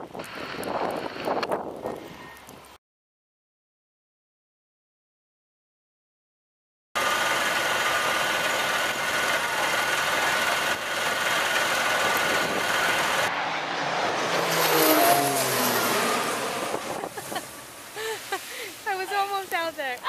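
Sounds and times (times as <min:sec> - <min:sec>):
fire engine motor running: 0:07.0 - 0:13.3
gliding pitched sounds: 0:07.0 - 0:19.8.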